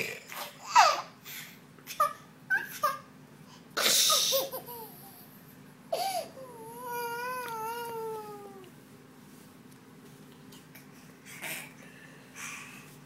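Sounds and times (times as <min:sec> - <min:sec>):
baby crying: 0:06.0 - 0:08.7.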